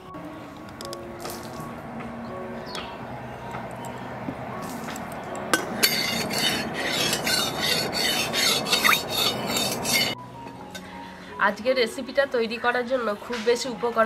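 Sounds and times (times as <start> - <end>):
utensil scraping in a pan: 5.7 - 10.2.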